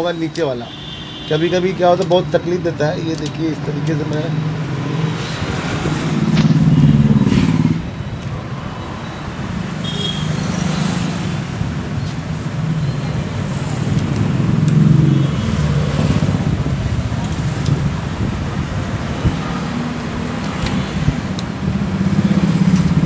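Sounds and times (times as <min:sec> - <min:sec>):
vehicle engines rumbling: 0:00.0 - 0:23.0.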